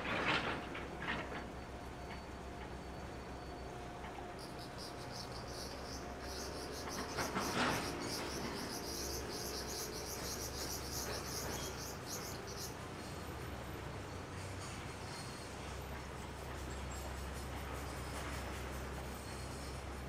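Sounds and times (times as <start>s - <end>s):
rapid high-pitched chirping: 4.4s - 12.8s.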